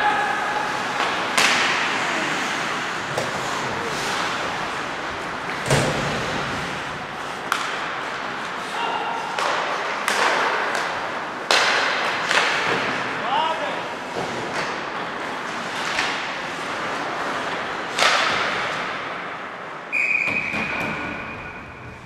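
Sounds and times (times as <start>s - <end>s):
puck and sticks banging boards: 0.1s - 13.3s, 14.0s - 19.4s, 20.2s - 22.0s
steady rink hiss: 0.4s - 8.8s.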